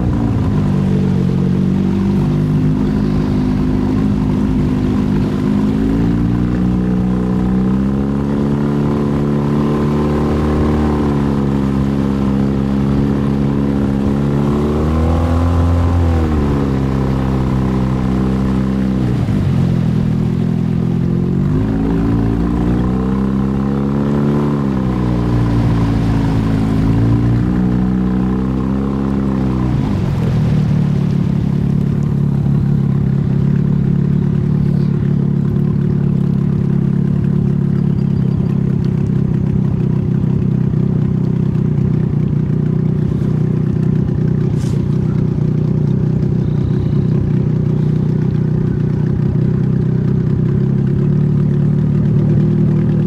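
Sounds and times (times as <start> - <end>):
engine revving: 0.0 - 41.4.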